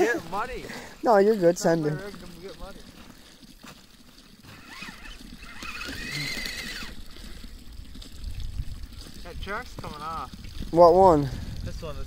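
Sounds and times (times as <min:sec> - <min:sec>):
toy electric motor whining: 0:04.4 - 0:07.0.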